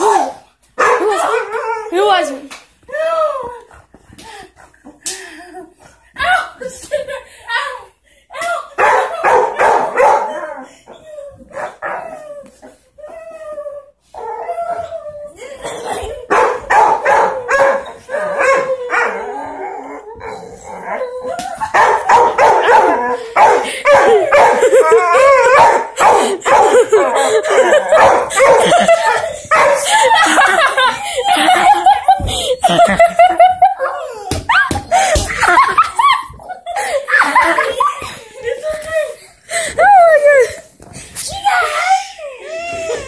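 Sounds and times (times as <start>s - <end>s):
dog barking yipping and howling: 8.8s - 10.5s, 16.3s - 19.3s, 21.6s - 27.0s, 27.6s - 30.6s.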